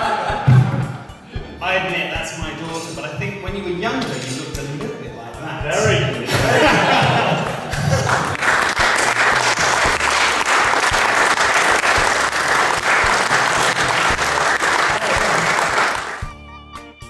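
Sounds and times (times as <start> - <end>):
audience applauding: 7.4 - 16.3.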